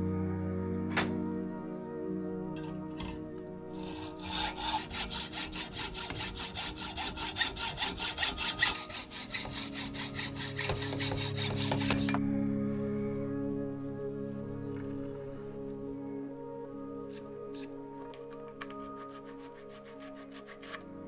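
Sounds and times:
hacksaw cutting a tube: 0:03.8 - 0:12.2, 0:18.6 - 0:20.9.

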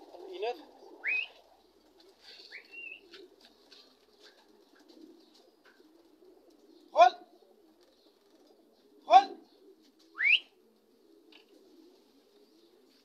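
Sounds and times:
pigeons cooing: 0:00.0 - 0:13.0.

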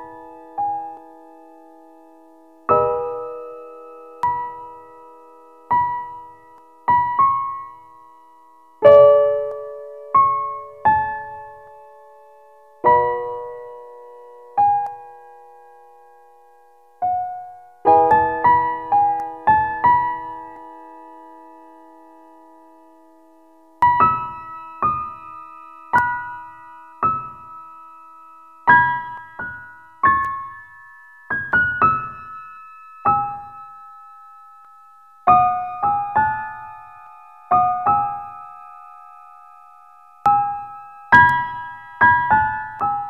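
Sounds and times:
slow piano melody: 0:00.0 - 0:43.0.

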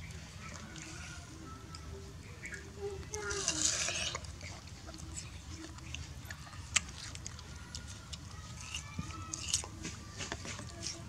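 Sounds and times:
monkey chewing wet clicks: 0:03.1 - 0:11.0.

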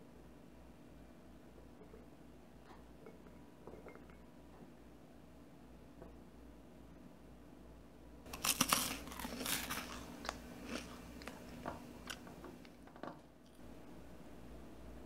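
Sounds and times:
crunching bite of toast: 0:08.3 - 0:12.2
crunchy chewing: 0:08.3 - 0:12.8.

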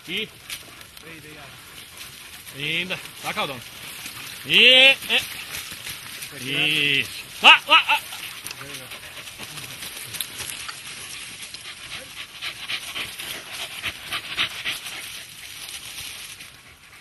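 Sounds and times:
dog panting hard: 0:08.0 - 0:17.0.

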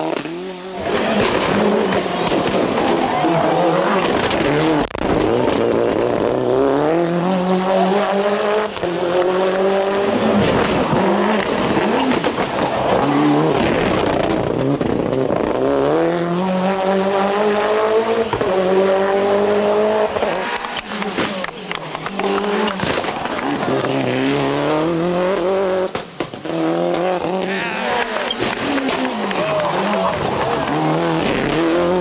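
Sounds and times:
rally car engine revving: 0:00.0 - 0:32.0.

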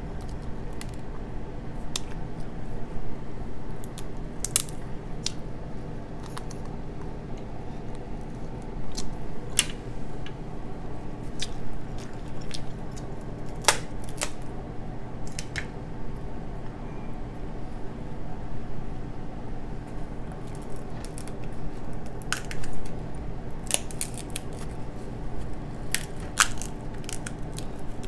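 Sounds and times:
steady low hum: 0:00.0 - 0:28.0
crab shells cracking: 0:03.8 - 0:05.4, 0:11.4 - 0:14.4, 0:20.4 - 0:23.0, 0:23.6 - 0:24.8, 0:25.8 - 0:28.0.

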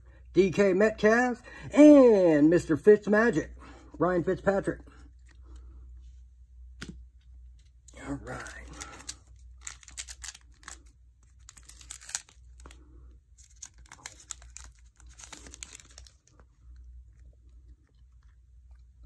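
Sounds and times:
foil wrapper crinkling and tearing: 0:08.2 - 0:16.5.

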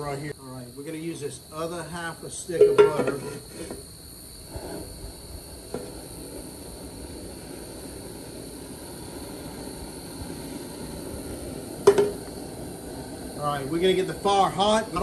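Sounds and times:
propane burner rushing: 0:00.0 - 0:15.0
metal clank: 0:02.6 - 0:03.8, 0:11.8 - 0:12.2.

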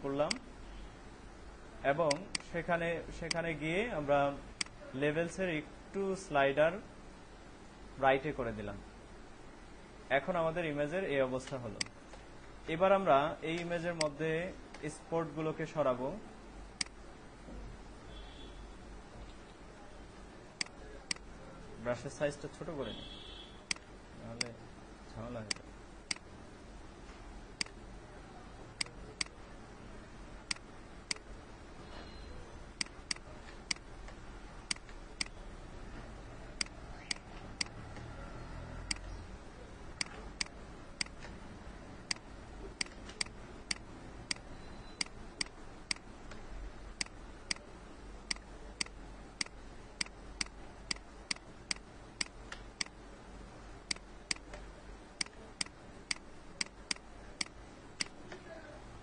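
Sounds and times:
faint low room hum: 0:00.0 - 0:59.0
computer mouse clicking: 0:32.8 - 0:35.4, 0:36.6 - 0:38.1, 0:38.8 - 0:39.1, 0:42.8 - 0:46.4, 0:47.0 - 0:47.7, 0:48.3 - 0:53.0, 0:53.9 - 0:58.2.

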